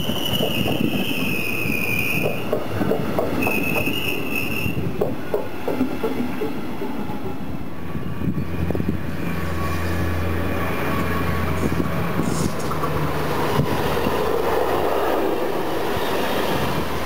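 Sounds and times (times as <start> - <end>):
high wheel squeal: 0.0 - 2.6, 3.4 - 4.9
train wheels clicking over rail joints: 0.0 - 7.5, 11.0 - 17.0
electric train hum: 0.0 - 17.0.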